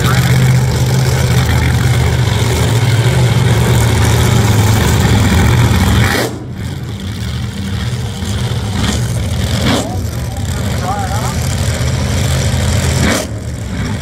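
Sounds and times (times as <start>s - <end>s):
drag race car engines idling: 0.0s - 14.0s.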